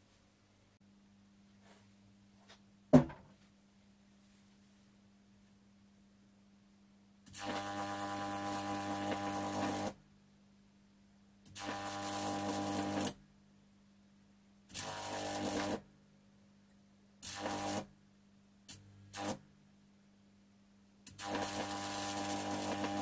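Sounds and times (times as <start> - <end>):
electric arcs buzzing and hissing: 7.3 - 10.0, 11.5 - 13.2, 14.7 - 15.8, 17.2 - 17.9, 18.7 - 19.4, 21.1 - 23.0.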